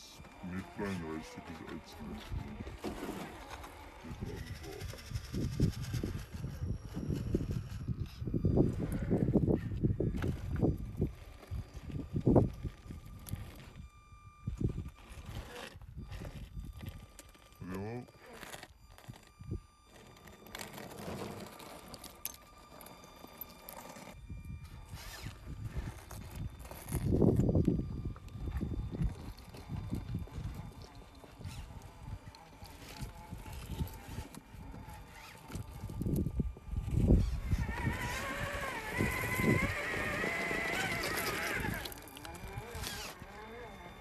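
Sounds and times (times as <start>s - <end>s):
rc car motor whining: 0.0s - 44.0s
tyres scrabbling on rock: 14.6s - 24.2s, 25.0s - 44.0s.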